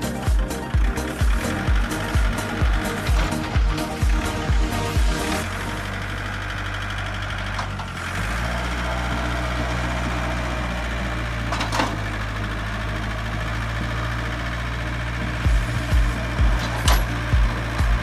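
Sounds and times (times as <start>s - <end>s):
tractor engine humming: 0.0s - 18.0s
metal clank: 11.5s - 12.0s, 16.4s - 17.5s.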